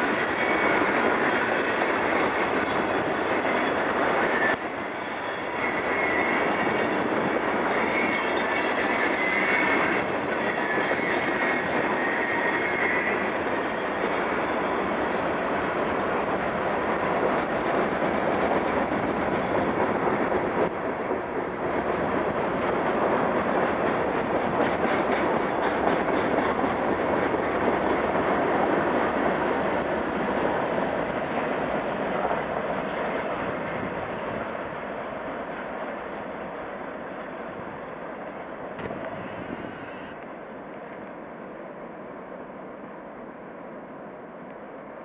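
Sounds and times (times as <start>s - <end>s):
train wheels squealing: 0.0s - 17.4s
train wheels clicking over rail joints: 21.8s - 36.1s.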